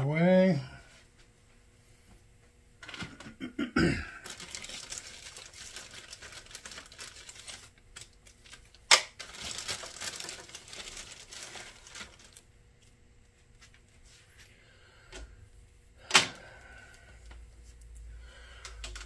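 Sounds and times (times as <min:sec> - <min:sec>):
plastic packaging crinkling: 0:04.2 - 0:13.0.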